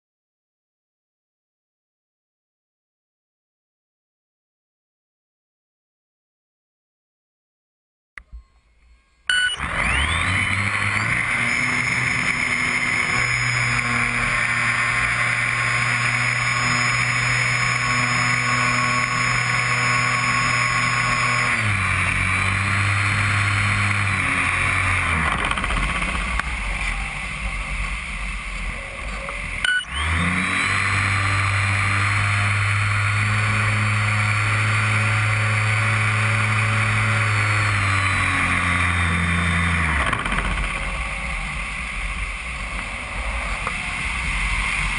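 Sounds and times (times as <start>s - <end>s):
model airplane motor and propeller: 9.3s - 44.9s.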